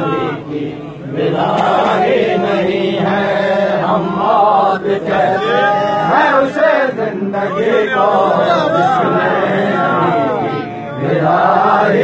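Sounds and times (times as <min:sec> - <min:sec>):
men chanting a lament: 0:00.0 - 0:12.0.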